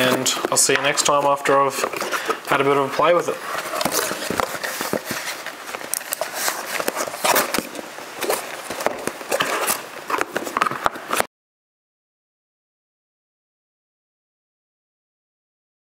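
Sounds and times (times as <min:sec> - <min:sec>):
cardboard rustling and scraping: 0:00.0 - 0:11.3.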